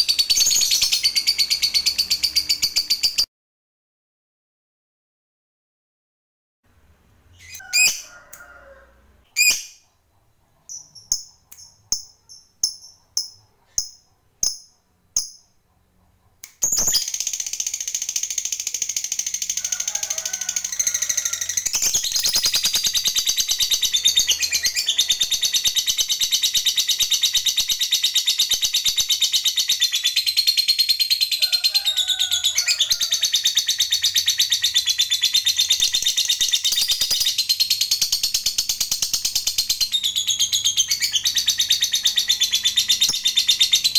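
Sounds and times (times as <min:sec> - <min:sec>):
lovebird calls and chirps: 0:00.0 - 0:03.3, 0:07.3 - 0:08.6, 0:09.3 - 0:09.8, 0:10.6 - 0:15.6, 0:16.4 - 0:43.9
lovebird chattering trill: 0:10.6 - 0:15.5, 0:20.8 - 0:31.3.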